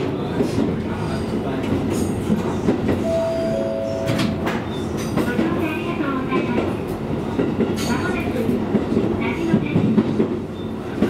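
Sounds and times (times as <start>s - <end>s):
diesel railcar running on track: 0.0s - 11.0s.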